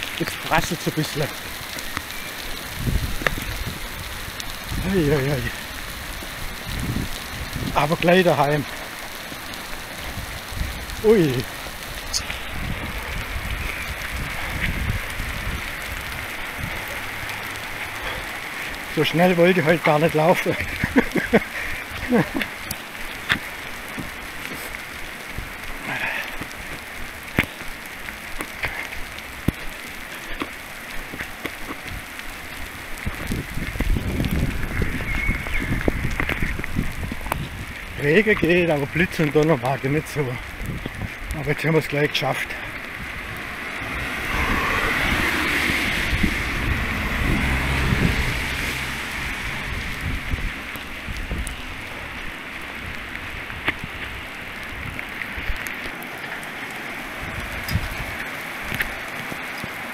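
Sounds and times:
rain falling: 0.0s - 59.9s
wind rumbling on microphone: 0.0s - 59.9s
drops ticking on camera: 19.8s - 43.1s
low rumble: 42.6s - 55.0s.

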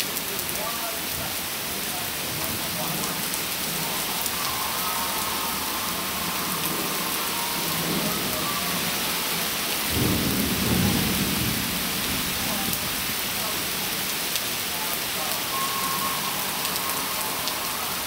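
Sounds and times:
steady rain falling: 0.0s - 18.0s
thunder rolling: 2.3s - 13.9s.

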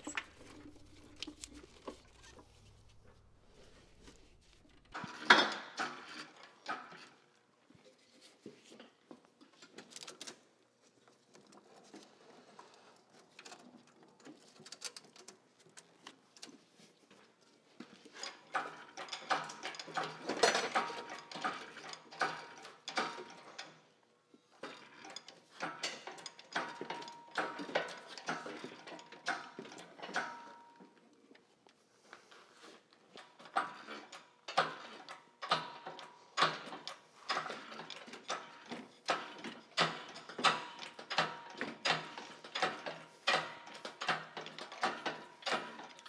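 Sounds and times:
hoist chains clicking and rattling: 0.0s - 7.1s, 18.2s - 23.8s, 33.2s - 46.0s.

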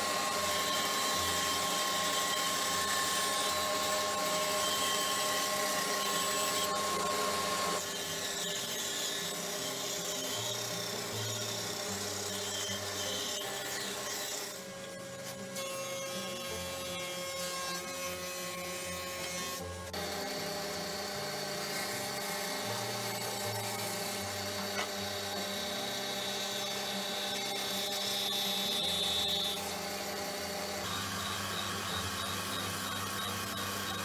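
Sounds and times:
thickness planer running: 0.0s - 17.3s, 17.9s - 34.0s
bandsaw cutting wood: 0.0s - 34.0s
belt sander running: 20.0s - 34.0s.

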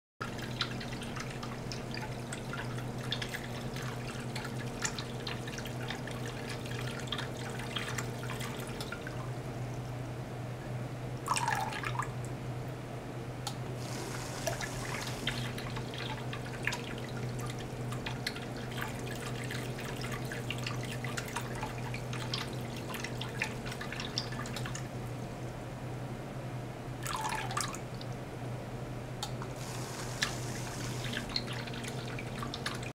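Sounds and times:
water dripping into a tub: 0.2s - 9.3s, 14.4s - 24.9s, 27.0s - 28.2s, 30.2s - 32.9s
pump humming: 0.2s - 9.9s, 13.6s - 25.5s, 29.4s - 32.9s
water gurgling: 13.8s - 24.9s, 29.6s - 32.9s.

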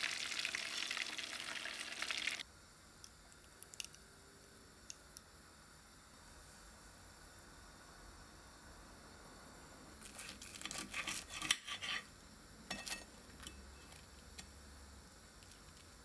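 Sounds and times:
crunching crackles of fried crust: 10.0s - 11.6s.

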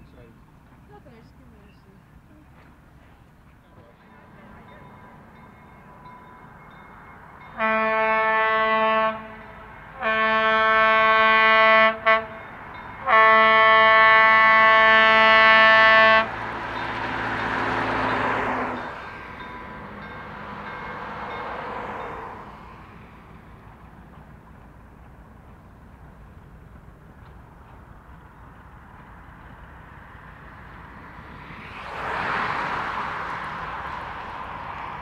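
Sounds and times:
rumble of approaching railcar: 0.0s - 35.0s
railcar horn: 7.5s - 17.0s.

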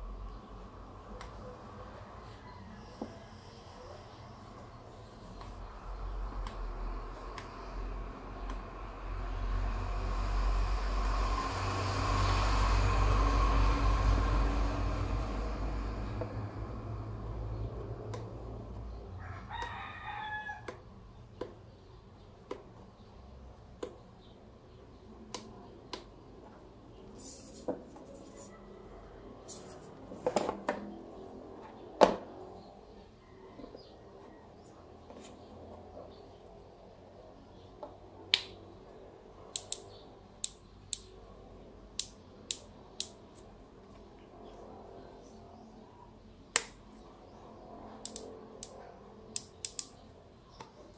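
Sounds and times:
low rumble: 5.7s - 19.1s
bird crowing call: 19.1s - 20.8s.

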